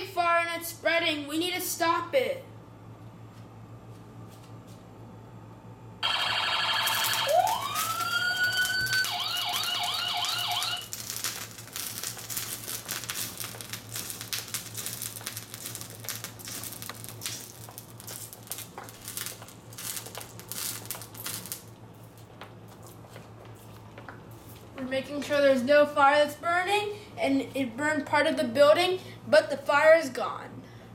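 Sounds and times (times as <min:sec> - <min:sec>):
toy siren sound effect: 0:06.0 - 0:10.9
crackling and clicking: 0:06.8 - 0:23.0.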